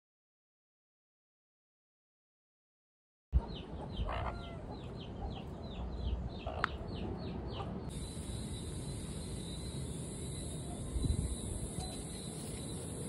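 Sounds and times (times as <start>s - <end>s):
chick peeping: 3.4s - 8.0s
steady high hiss: 7.9s - 13.0s.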